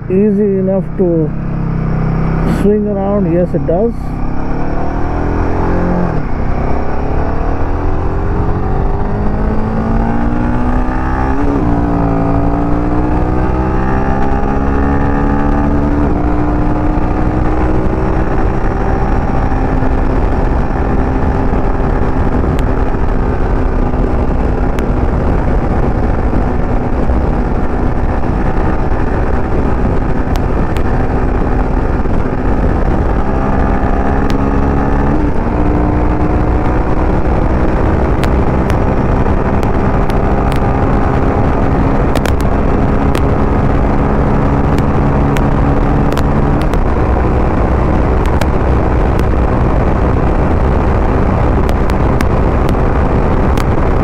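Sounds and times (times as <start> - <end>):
heavy wind rush: 0.0 - 54.0
motorcycle engine accelerating: 0.0 - 54.0.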